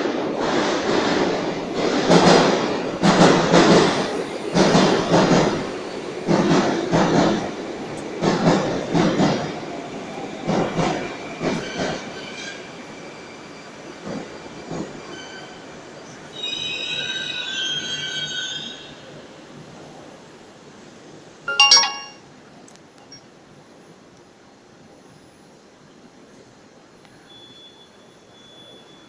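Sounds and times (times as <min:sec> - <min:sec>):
train wheels clattering over rail joints: 0:01.8 - 0:09.6.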